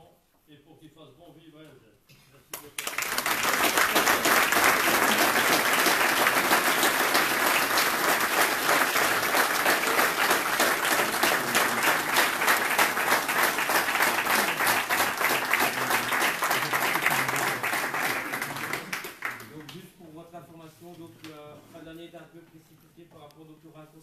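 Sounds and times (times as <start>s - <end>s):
audience applauding: 2.7s - 19.8s.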